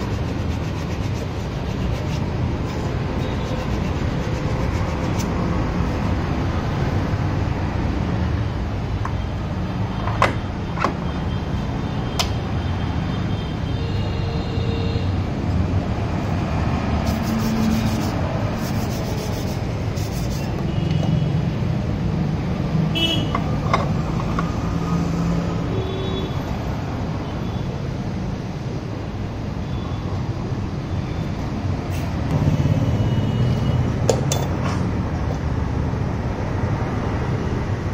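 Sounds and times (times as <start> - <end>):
workshop background noise: 0.0 - 13.0, 15.3 - 25.5, 31.3 - 37.0
road traffic: 0.0 - 37.9.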